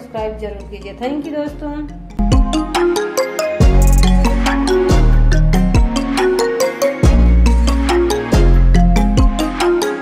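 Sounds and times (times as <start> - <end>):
bell-like melody notes: 0.4 - 10.0
deep bass: 1.6 - 2.9, 3.6 - 6.3
electronic music with quick beat: 2.1 - 10.0.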